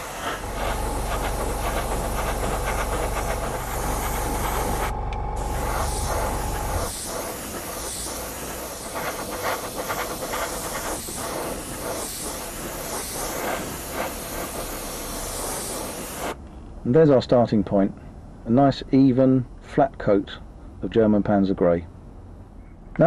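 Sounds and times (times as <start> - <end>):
airbrush air hiss: 0.0 - 16.4
low hum: 0.2 - 7.2
faint whistle: 22.6 - 23.0.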